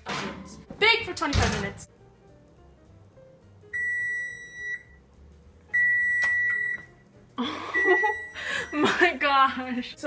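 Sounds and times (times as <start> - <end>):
oven timer beeping: 3.7 - 5.0, 5.7 - 7.0, 7.7 - 8.9.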